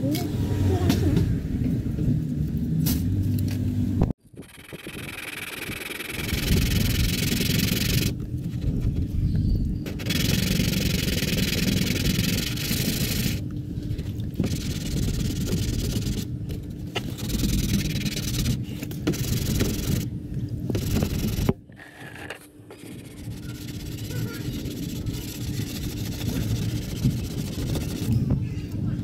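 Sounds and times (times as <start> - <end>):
sanding scraping hiss: 4.7 - 8.2, 10.0 - 13.4, 17.0 - 20.0, 20.7 - 21.5, 22.8 - 28.1.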